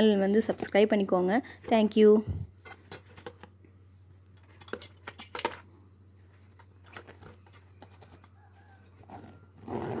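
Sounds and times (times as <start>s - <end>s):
zipper being pulled closed: 9.0s - 10.0s.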